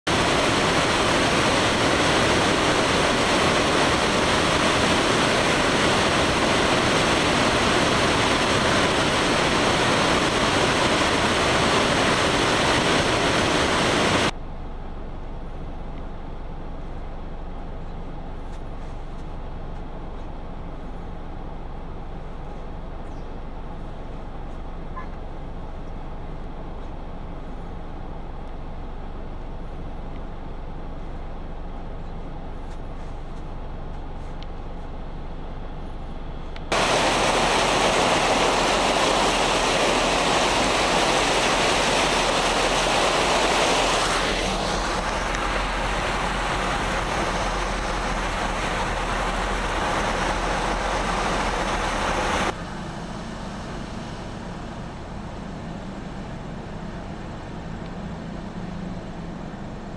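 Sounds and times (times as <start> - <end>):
rushing floodwater: 0.1 - 14.3, 36.7 - 58.3
car driving through flood water: 0.1 - 14.4, 36.7 - 59.9.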